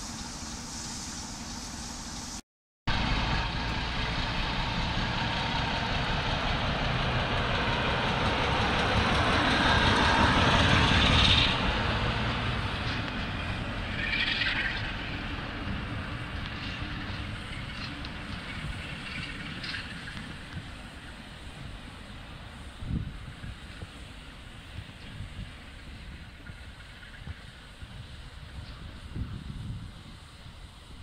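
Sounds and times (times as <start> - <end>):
short hiss: 0.0 - 2.4
diesel locomotive rumbling past: 0.0 - 31.0.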